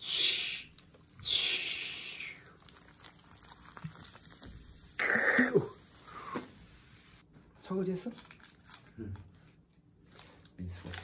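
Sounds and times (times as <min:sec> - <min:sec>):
cola poured over ice fizzing: 0:02.2 - 0:05.8
person short vocal sound: 0:05.0 - 0:06.4.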